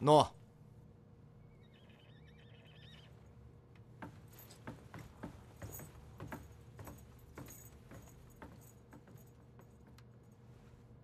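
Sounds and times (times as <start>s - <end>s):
footsteps on wooden floor: 3.9s - 10.1s
armour plates jingling: 4.1s - 9.9s.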